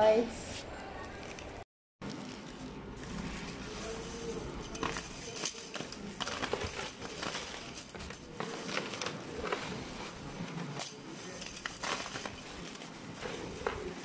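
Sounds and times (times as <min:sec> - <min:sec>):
small metal parts clinking: 0:03.4 - 0:14.0.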